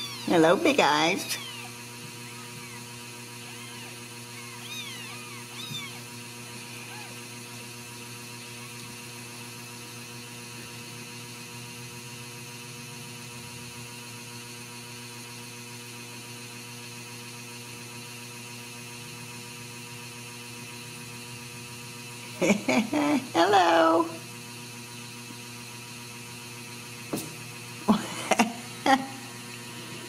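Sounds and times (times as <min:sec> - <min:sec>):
steady electrical hum: 0:00.0 - 0:14.3, 0:20.4 - 0:30.0.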